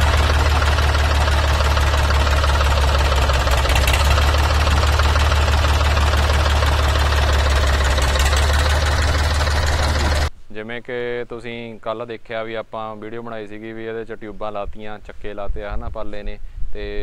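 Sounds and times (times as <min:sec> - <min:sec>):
tractor engine idling: 0:00.0 - 0:10.3.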